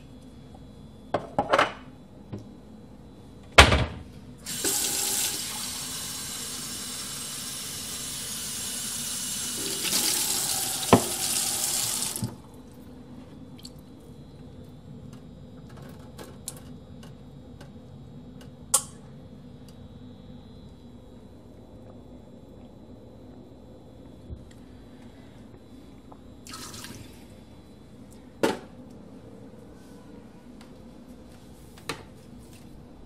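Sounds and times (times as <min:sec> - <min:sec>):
water running into sink: 0:04.4 - 0:12.4, 0:26.5 - 0:27.2.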